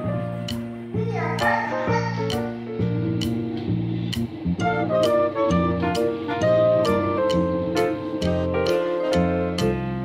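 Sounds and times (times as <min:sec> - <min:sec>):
instrumental background music: 0:00.0 - 0:10.0
percussive hits: 0:02.3 - 0:09.8.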